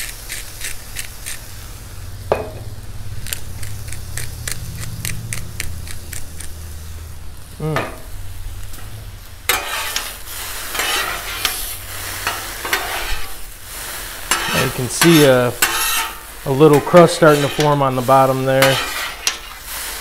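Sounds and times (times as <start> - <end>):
pepper grinder clicking: 0.0 - 1.5, 3.2 - 6.6
noodles sizzling on a griddle: 0.0 - 4.4, 5.9 - 20.0
metal spatulas scraping a griddle: 9.5 - 20.0.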